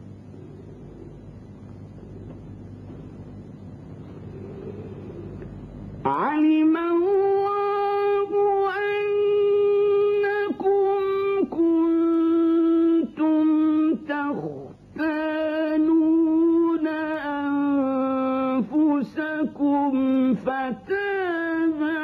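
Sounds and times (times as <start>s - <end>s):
man reciting melodically: 6.0s - 22.0s.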